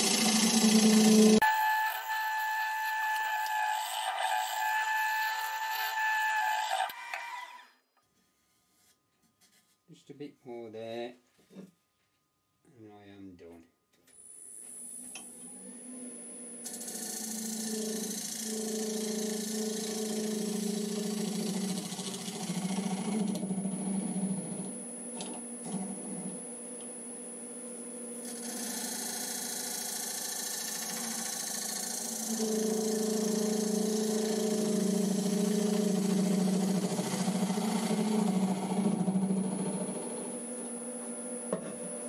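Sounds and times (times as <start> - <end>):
wood lathe motor hum and whine: 0.0 - 7.7, 14.6 - 42.0
turning tool cutting wood hiss: 16.6 - 23.4, 28.2 - 39.4.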